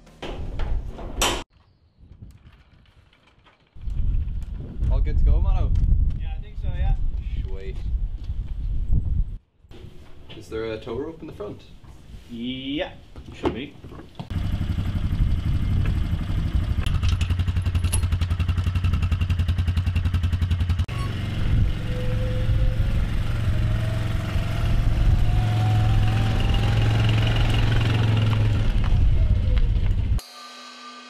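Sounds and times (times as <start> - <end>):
quad bike engine idling: 14.3 - 21.6.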